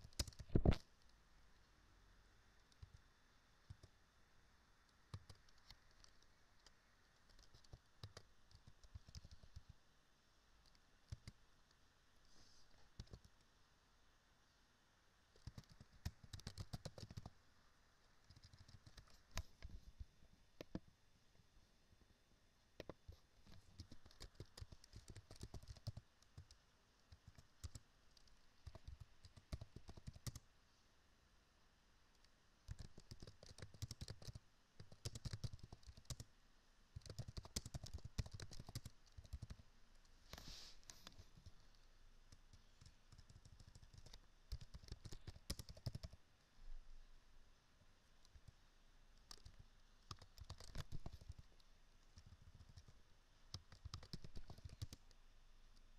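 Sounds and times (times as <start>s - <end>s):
keyboard typing clicks: 0.0s - 0.8s, 5.1s - 6.7s, 7.3s - 9.7s, 10.6s - 11.4s, 15.4s - 17.3s, 23.8s - 30.4s, 32.7s - 36.3s, 37.0s - 39.6s, 42.5s - 46.2s, 49.2s - 51.4s, 53.5s - 55.1s.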